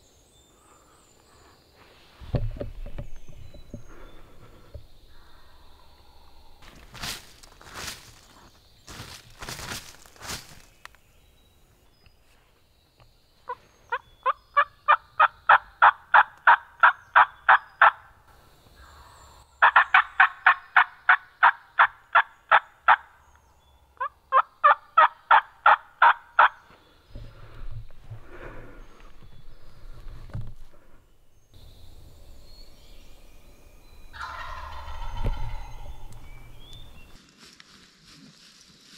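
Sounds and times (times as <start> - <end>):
turkey yelping: 19.6 - 23.0, 24.0 - 26.6, 34.2 - 35.9.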